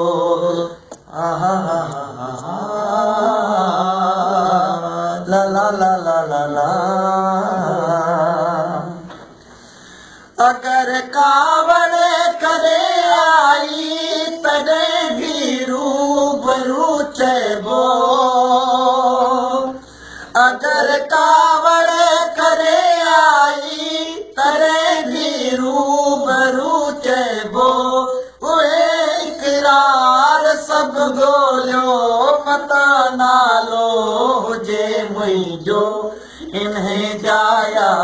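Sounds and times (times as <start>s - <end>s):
man singing in high voice: 0.0s - 9.3s, 10.3s - 38.0s
singer breathing: 9.4s - 10.4s, 19.8s - 20.4s, 36.1s - 36.5s.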